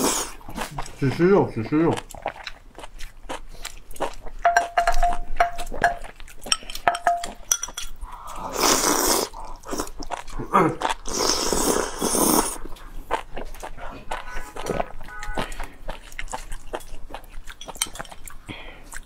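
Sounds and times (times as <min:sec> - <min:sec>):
wet slurps: 0:00.0 - 0:01.0, 0:08.1 - 0:16.7
chewing and lip smacks: 0:00.0 - 0:19.0
chopsticks clinking against bowls: 0:04.4 - 0:08.0, 0:16.6 - 0:18.4.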